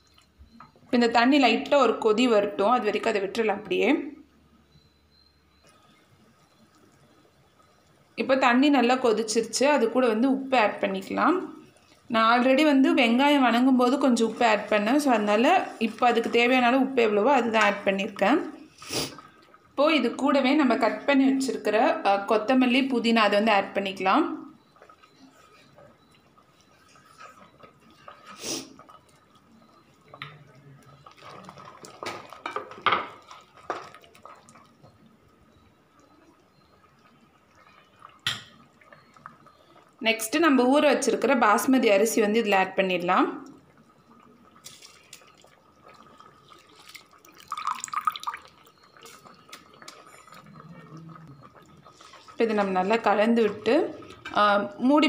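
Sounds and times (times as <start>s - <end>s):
faint steady tone: 3.6s - 55.0s
liquid sloshing and dripping: 23.9s - 40.0s, 43.4s - 54.4s.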